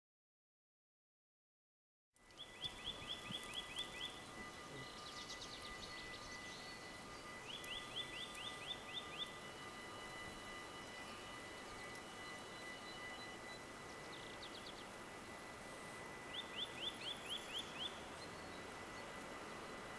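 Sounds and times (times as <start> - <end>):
bird chirping: 2.2 - 15.0, 16.1 - 19.2
faint outdoor hiss: 2.2 - 19.9
songbird singing: 2.2 - 19.9
thin steady whine: 2.2 - 19.9.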